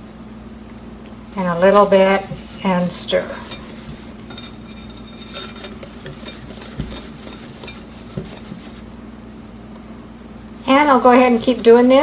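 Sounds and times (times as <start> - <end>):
utensil scraping glass bowl: 1.4 - 9.0, 10.7 - 12.0.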